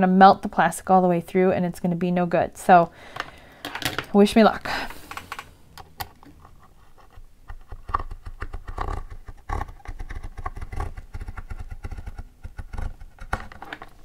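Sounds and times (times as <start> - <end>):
small clicks and scrapes: 4.9 - 14.0.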